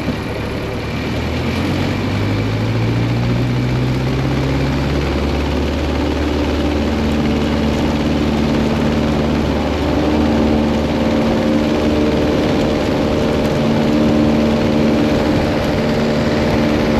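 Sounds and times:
airplane engine and propeller drone: 0.0 - 16.9
wind rush: 0.0 - 16.9.

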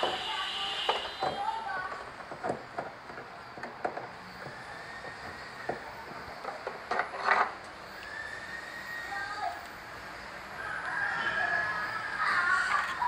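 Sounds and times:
rooster crowing: 10.5 - 12.8.

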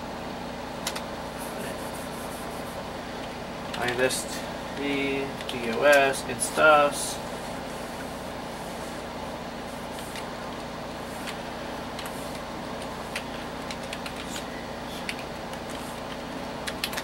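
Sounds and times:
computer fans humming: 0.0 - 17.0
keyboard keystroke clicks: 16.6 - 17.0.

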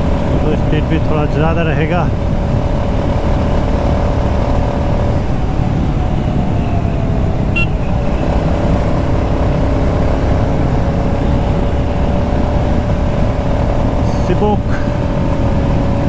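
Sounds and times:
motorcycle engine cruising: 0.0 - 16.0
wind on microphone: 2.0 - 14.1.

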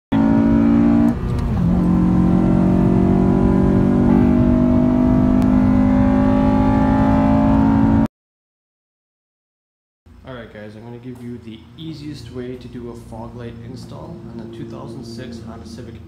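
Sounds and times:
car engine accelerating: 0.1 - 8.1, 13.2 - 16.0.

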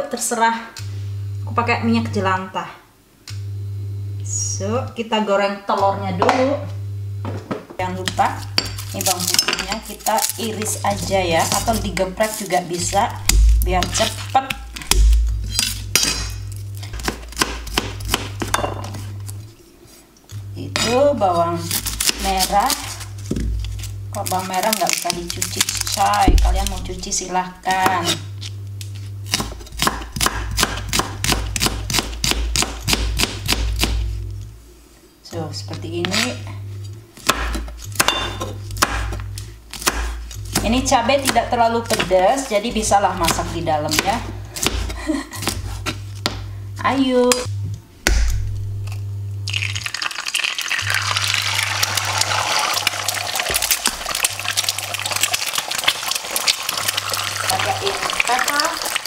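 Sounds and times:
knife chopping on plastic board: 17.0 - 18.6, 29.3 - 34.0, 37.2 - 46.4
egg sizzling in hot oil: 49.4 - 59.0.

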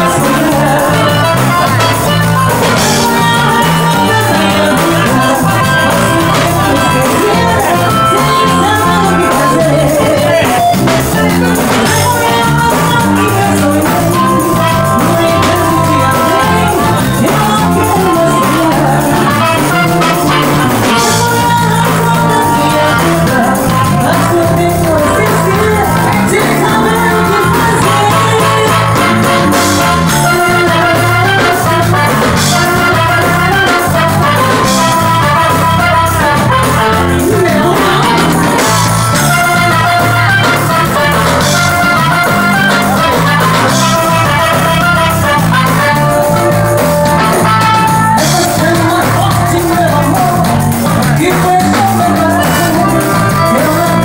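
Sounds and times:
drum kit: 0.0 - 54.0
electric guitar: 0.0 - 54.0
person singing: 0.0 - 54.0.

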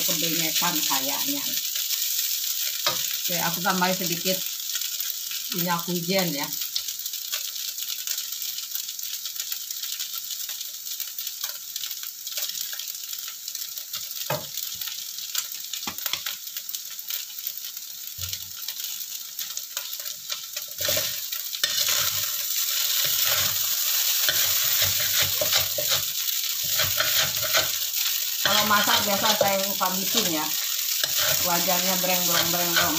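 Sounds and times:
noodles sizzling in wok: 0.0 - 32.9
metal spatula scraping wok: 20.8 - 32.9.

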